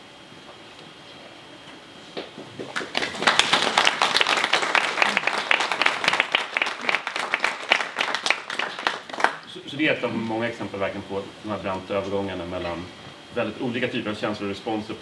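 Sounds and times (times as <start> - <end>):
audience applauding: 2.6 - 9.5.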